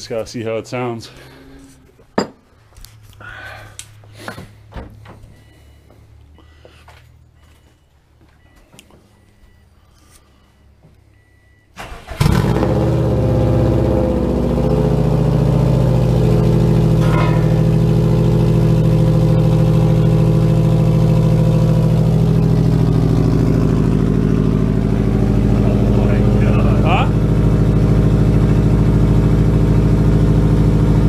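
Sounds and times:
car engine starting and idling: 11.2 - 31.0.

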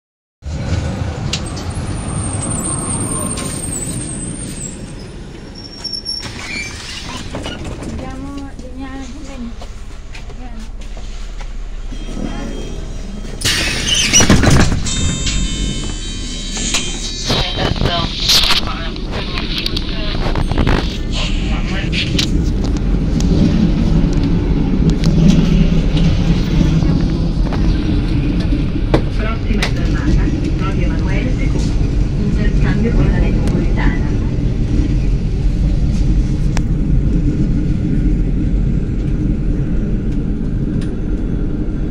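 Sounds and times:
tram wheels rumbling on rails: 0.4 - 41.9
high wheel squeal: 1.5 - 7.3, 11.9 - 17.2
short high door beeps: 11.9 - 17.0.

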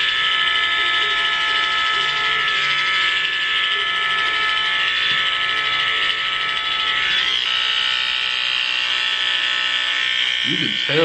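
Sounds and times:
electric hair clippers buzzing: 0.0 - 11.0.

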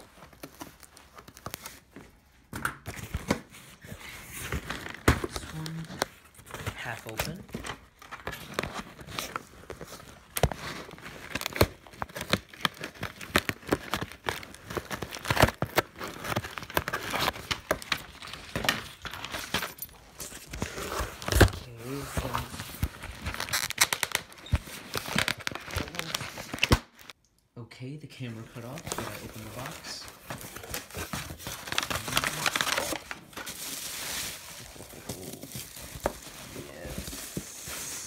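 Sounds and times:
cardboard box handling noise: 28.8 - 38.0.

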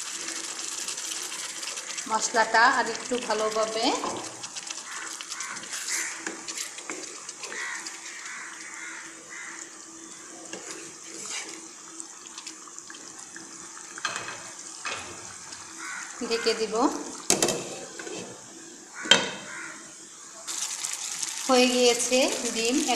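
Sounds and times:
spatula stirring in a wok: 0.0 - 9.6, 10.2 - 11.8
curry simmering and bubbling: 0.0 - 22.9.

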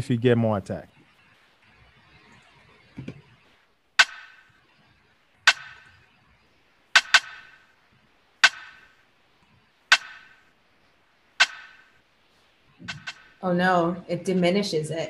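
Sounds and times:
rim-shot drum hits: 12.8 - 13.2.

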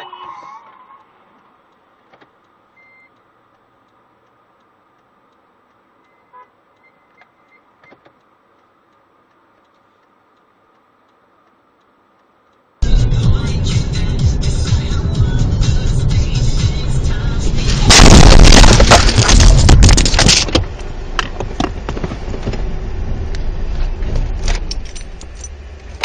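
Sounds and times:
car interior background noise: 0.0 - 26.0
soft clicks: 1.0 - 12.8.

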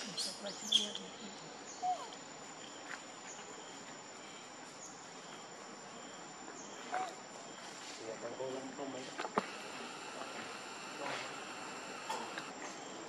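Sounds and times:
high-pitched insect drone: 9.4 - 12.6.

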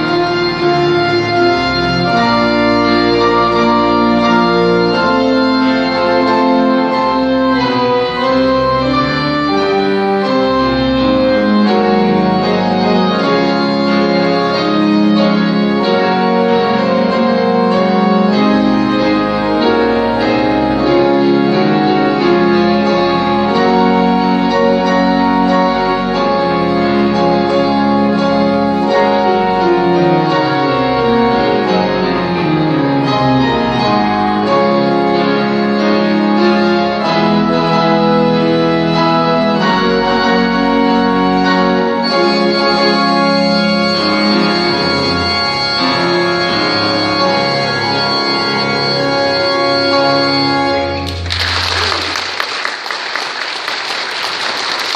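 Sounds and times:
organ and piano playing: 0.0 - 54.9
congregation applauding: 50.9 - 54.9.

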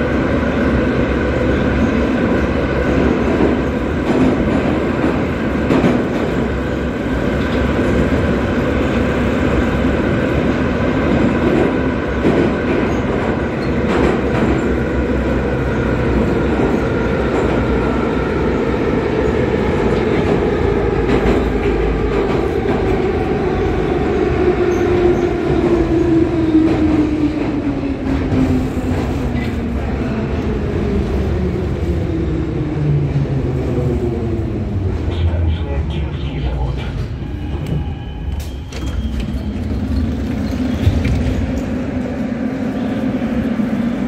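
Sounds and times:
train running gear whine: 0.0 - 44.0
wheel and rail rumble: 0.0 - 44.0
rail joint clicks: 11.1 - 14.8, 36.7 - 42.2.

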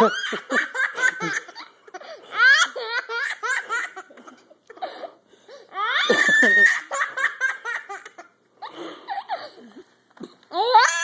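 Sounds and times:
man laughing hard: 0.0 - 1.7, 6.0 - 7.8
toddler giggling: 0.0 - 5.0, 5.8 - 8.3.

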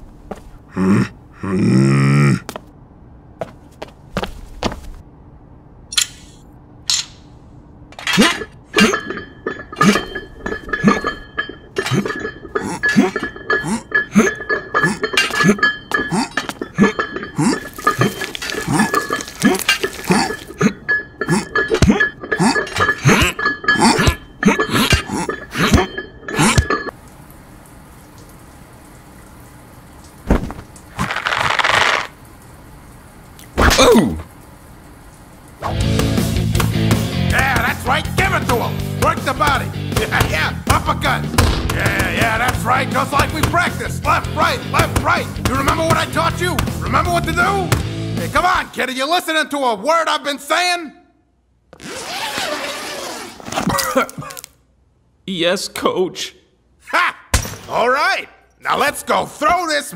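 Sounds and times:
weight stack clanking: 7.9 - 26.9.

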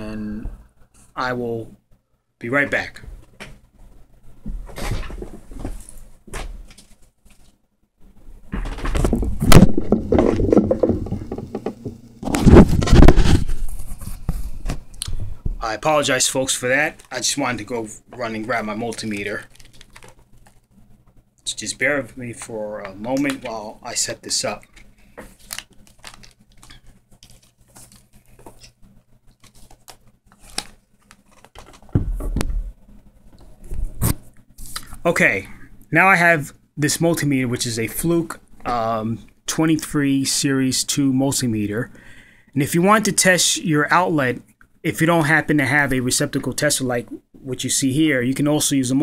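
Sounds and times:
small handling clicks and rustles: 18.2 - 21.2.

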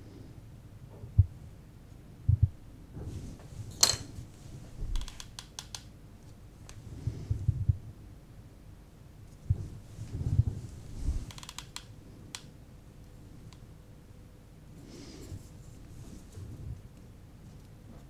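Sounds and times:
small clicks: 5.0 - 5.9.

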